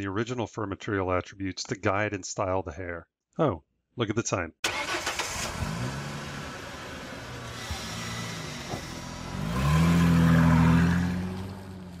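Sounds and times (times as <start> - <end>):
car engine revving: 4.7 - 12.0.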